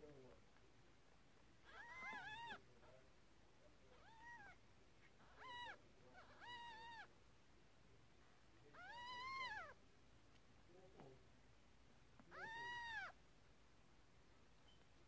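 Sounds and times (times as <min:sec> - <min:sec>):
cat meowing: 0:01.6 - 0:02.6, 0:03.9 - 0:04.6, 0:05.2 - 0:07.1, 0:08.7 - 0:09.8, 0:12.3 - 0:13.2.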